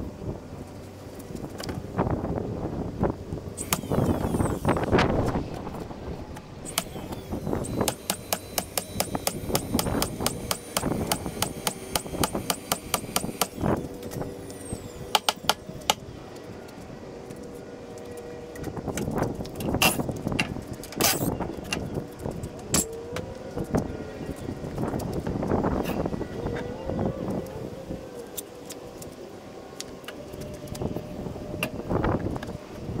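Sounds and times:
cordless drill whirring: 3.6s - 5.0s, 6.6s - 16.0s.

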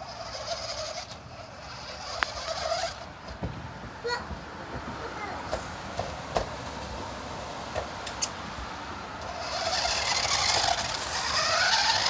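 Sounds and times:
toy car electric motor whining: 0.0s - 3.4s, 9.2s - 12.0s.

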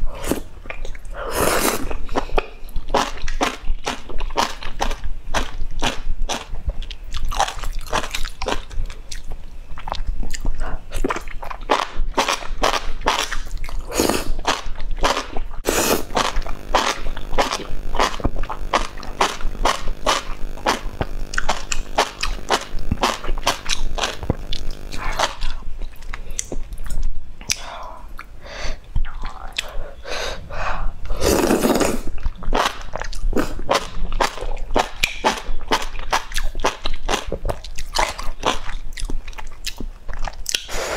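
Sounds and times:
loud slurp: 1.3s - 2.0s, 15.6s - 25.6s, 31.1s - 32.1s
wet chewing and lip smacks: 6.7s - 13.8s, 32.2s - 40.7s.

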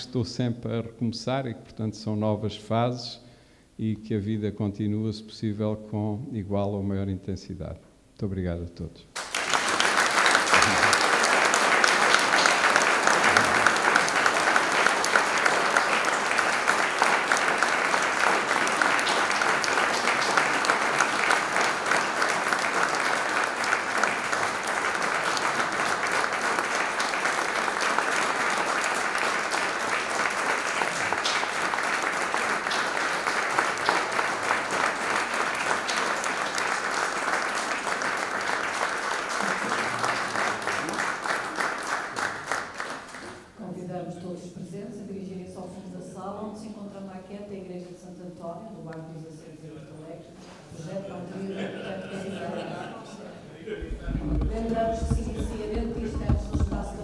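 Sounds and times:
audience applauding: 9.2s - 43.6s, 53.7s - 57.0s.

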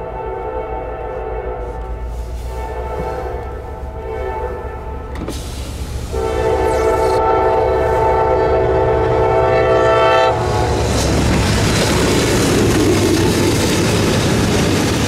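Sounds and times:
locomotive air horn: 0.0s - 10.9s
freight train rumbling past: 0.0s - 15.0s.

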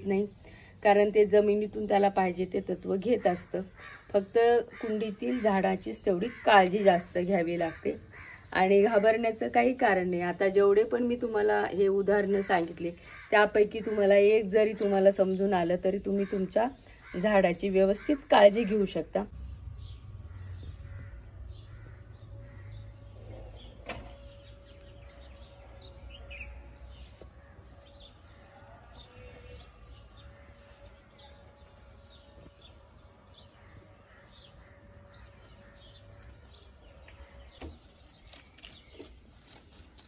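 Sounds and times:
low background rumble: 19.0s - 25.2s
bird chirping: 19.3s - 39.6s
leaves rustling when handled: 37.6s - 40.0s.

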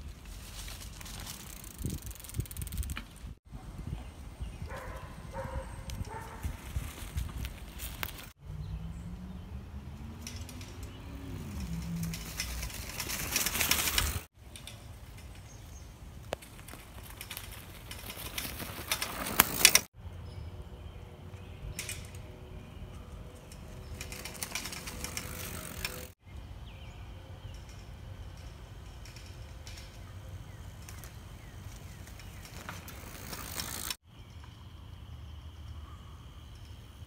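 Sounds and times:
bike tyres crunching through leaves: 0.0s - 3.4s, 4.7s - 9.0s, 10.0s - 14.3s, 15.2s - 19.9s, 23.2s - 26.2s, 30.0s - 34.0s.

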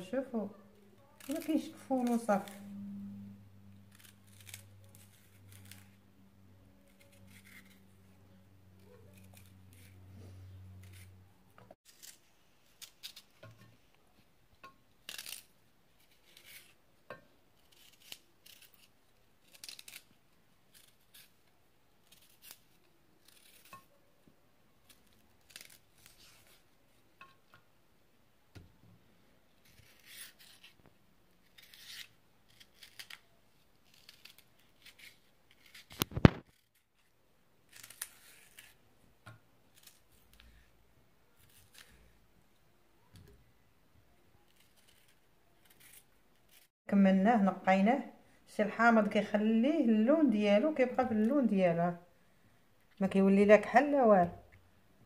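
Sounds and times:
knife scraping vegetable stalks: 1.2s - 2.9s, 3.9s - 6.0s, 6.9s - 8.1s, 8.8s - 11.2s, 15.0s - 16.8s, 17.6s - 20.1s, 22.0s - 24.0s, 24.9s - 26.7s, 29.6s - 30.8s, 31.4s - 33.2s, 33.8s - 37.1s, 37.7s - 38.8s, 44.5s - 46.7s
low hum: 2.4s - 11.7s.

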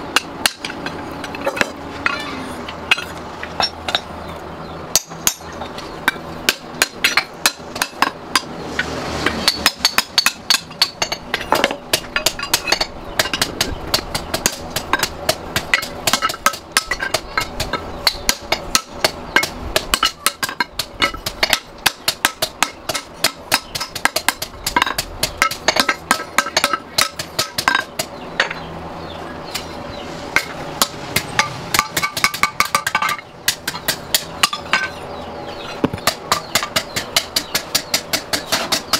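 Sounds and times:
hammer striking steel on anvil: 4.9s - 8.5s, 9.2s - 28.6s, 30.4s - 35.1s.

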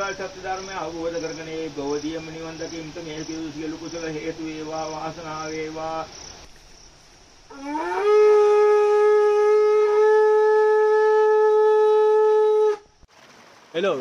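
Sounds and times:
conch shell blown: 7.5s - 12.8s.

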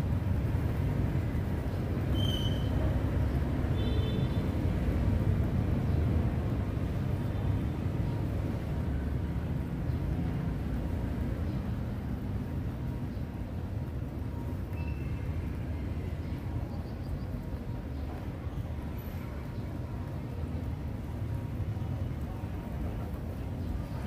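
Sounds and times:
low outdoor rumble: 0.0s - 24.0s.

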